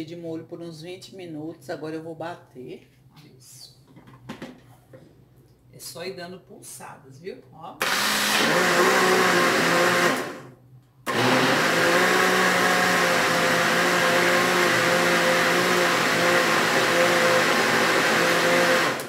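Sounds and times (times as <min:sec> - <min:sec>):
blender motor running: 0:07.8 - 0:10.5, 0:11.1 - 0:19.0.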